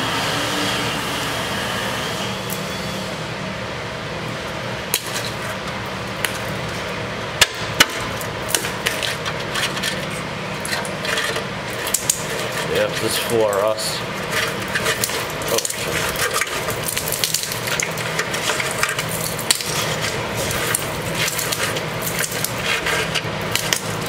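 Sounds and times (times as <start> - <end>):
background whir: 0.0 - 24.0
rust cracking and crunching: 4.9 - 24.0.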